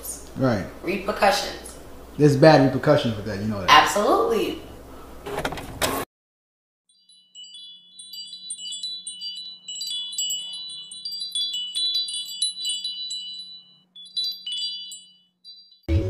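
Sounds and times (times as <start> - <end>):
chimes tinkling: 6.9 - 16.0.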